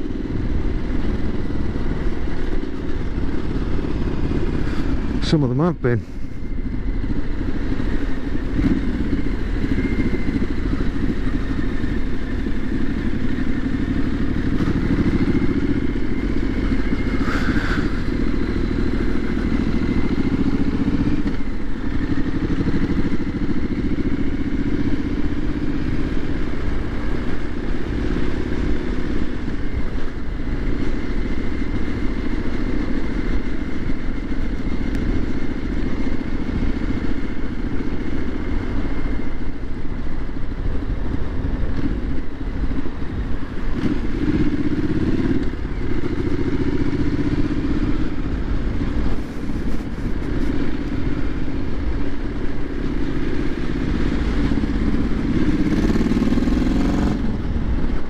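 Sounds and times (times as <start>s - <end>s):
motorcycle engine revving: 0.0s - 58.0s
wind rumble on microphone: 28.7s - 58.0s.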